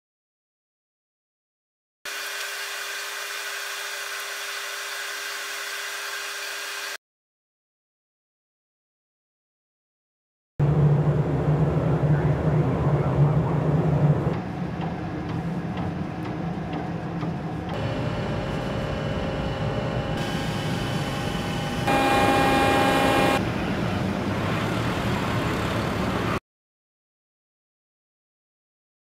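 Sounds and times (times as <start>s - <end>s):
ship machinery hum: 10.7s - 26.4s
steady whining tones: 14.4s - 23.5s.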